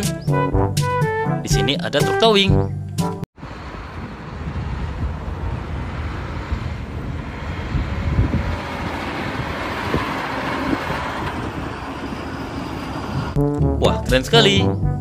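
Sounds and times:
truck driving past: 3.4 - 13.5.

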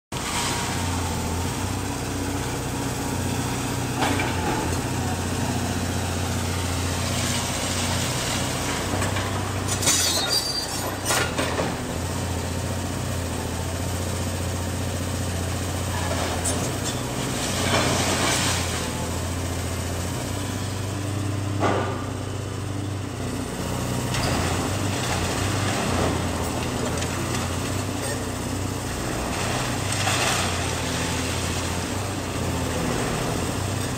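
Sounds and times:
excavator diesel engine running: 0.2 - 33.9
masonry crashing and clattering: 8.5 - 11.8.

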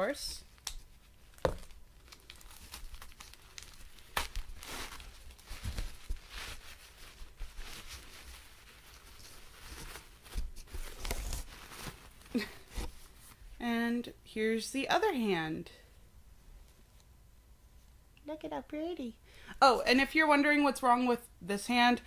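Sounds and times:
tissue paper rustling: 0.4 - 13.4.

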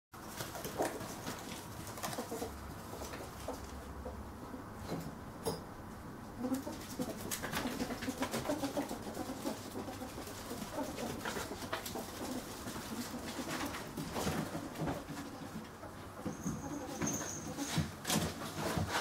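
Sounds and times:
ferret clucking: 6.4 - 17.0.

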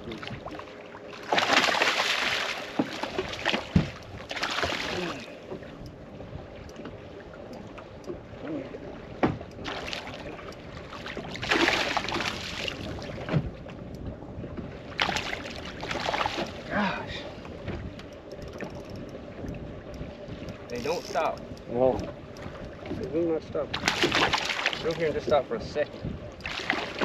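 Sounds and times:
fish splashing at water surface: 1.2 - 5.4, 10.9 - 12.8, 23.8 - 25.0.

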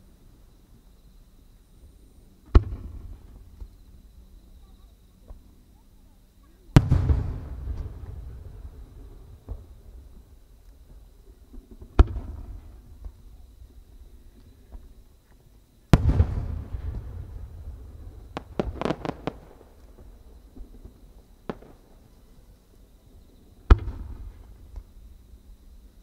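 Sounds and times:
firework booms with echoing rumble: 2.4 - 4.0, 6.7 - 15.0, 15.9 - 22.2, 23.2 - 25.8
sharp firework cracks: 2.5 - 3.7, 6.8 - 10.8, 11.7 - 13.2, 15.9 - 22.0, 23.7 - 25.0.

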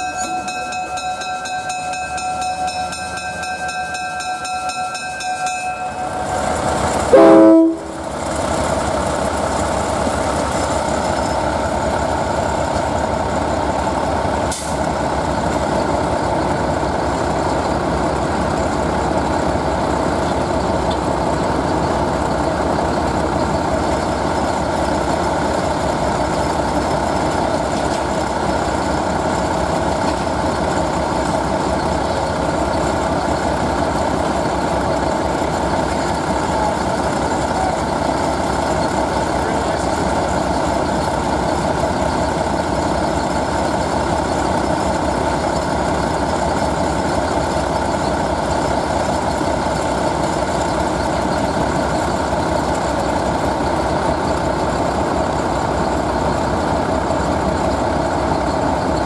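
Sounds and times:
steady high tones: 0.0 - 8.3
diesel locomotive rumbling: 0.0 - 59.0
loud train horn blast: 6.0 - 8.2.

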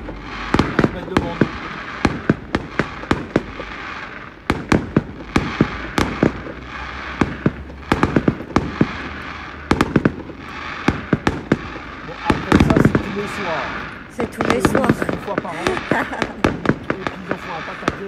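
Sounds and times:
fireworks bangs and pops: 0.0 - 18.0.

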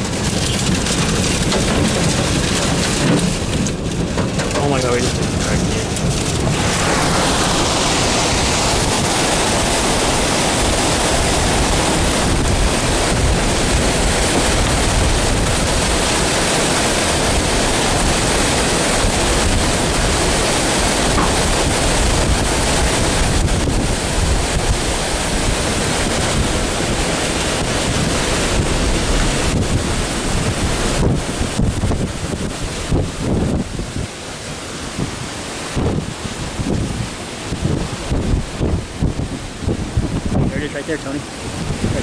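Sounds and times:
strong wind rushing: 0.0 - 42.0
wind noise on microphone: 0.0 - 42.0.

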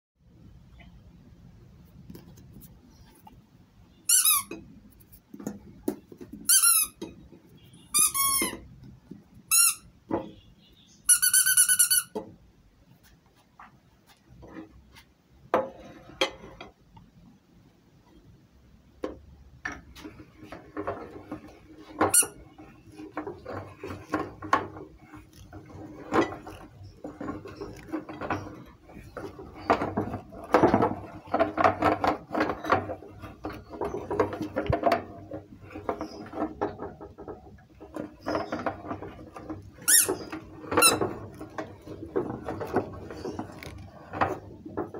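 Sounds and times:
rubber squeaky toy squeaking: 4.1 - 4.6, 6.5 - 7.0, 7.8 - 8.6, 9.5 - 9.9, 11.1 - 12.2, 22.1 - 22.4, 39.8 - 40.2.

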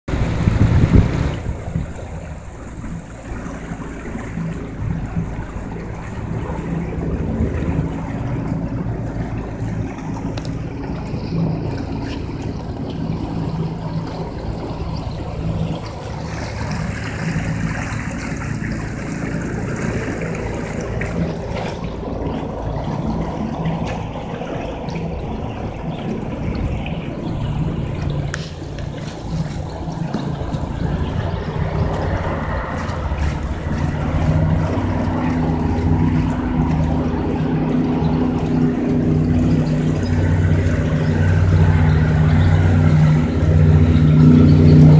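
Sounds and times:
water rushing along hull: 0.0 - 44.9
outboard motor running: 0.1 - 44.9
wind on microphone: 0.1 - 44.9.

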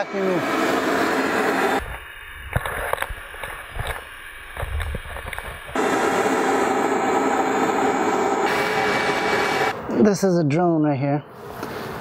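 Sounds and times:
vacuum running: 0.0 - 2.0, 5.7 - 9.8.

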